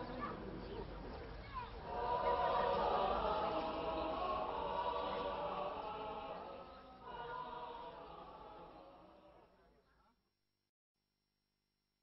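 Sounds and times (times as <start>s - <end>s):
chanted singing: 1.8s - 9.6s.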